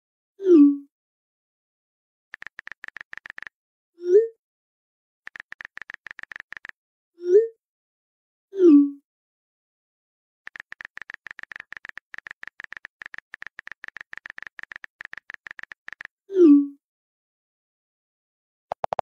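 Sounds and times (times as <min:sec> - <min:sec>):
keyboard typing clicks: 0:02.3 - 0:03.5, 0:05.3 - 0:06.7, 0:10.5 - 0:16.1, 0:18.7 - 0:19.0.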